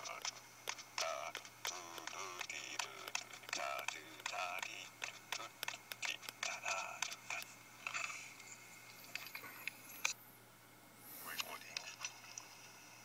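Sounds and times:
faint murmured voice: 1.0 - 8.4.

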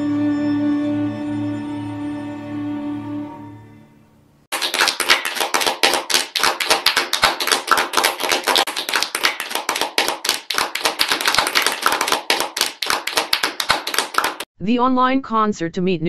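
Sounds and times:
many people clapping: 4.5 - 14.5.

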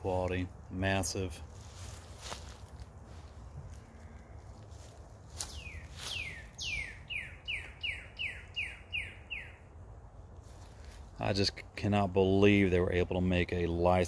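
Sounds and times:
songbird whistling: 5.4 - 9.6.

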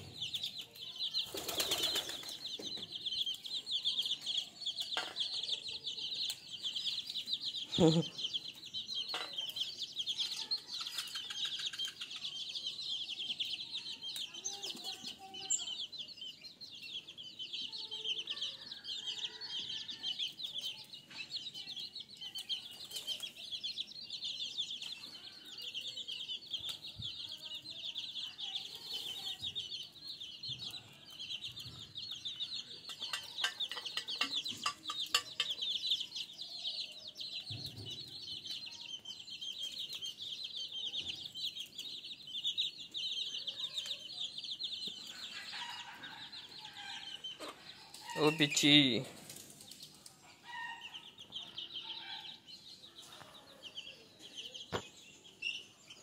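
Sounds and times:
wings flapping: 1.2 - 2.4.

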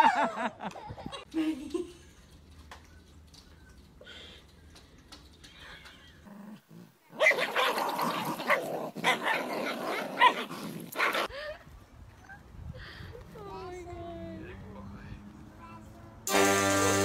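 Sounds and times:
dogs growling and barking: 6.2 - 11.3.

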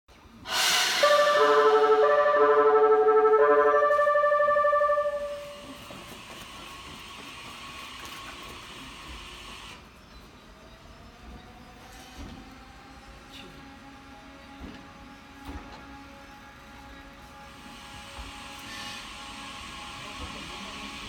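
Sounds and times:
hiss of moving train: 0.1 - 10.4, 11.8 - 21.0
musical multi-note train horn: 0.5 - 6.0, 13.5 - 21.0.

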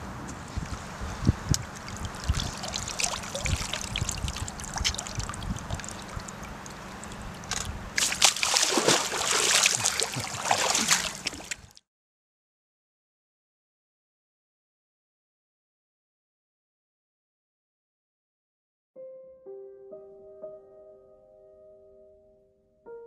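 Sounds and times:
water sloshing and trickling: 0.6 - 11.8
fish splashing: 1.6 - 11.7.

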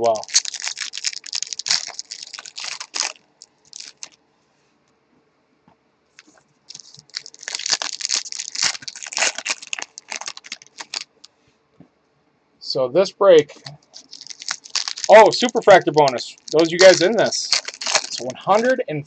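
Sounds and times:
foil wrapper crinkling and tearing: 0.0 - 4.2, 6.2 - 11.1, 13.7 - 18.7.

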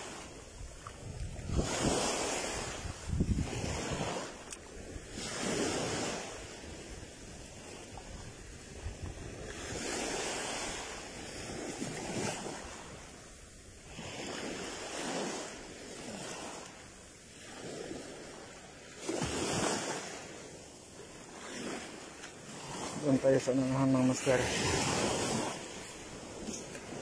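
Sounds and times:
sea waves washing on shore: 0.0 - 27.0.

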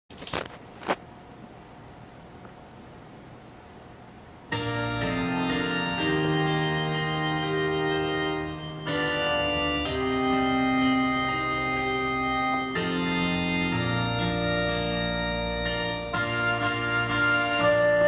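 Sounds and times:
organ playing slow chords: 4.5 - 18.0.

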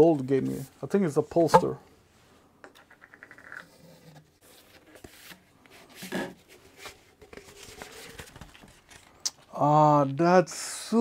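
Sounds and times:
poster tube opening: 1.4 - 1.8
paper rustling: 4.4 - 9.5.

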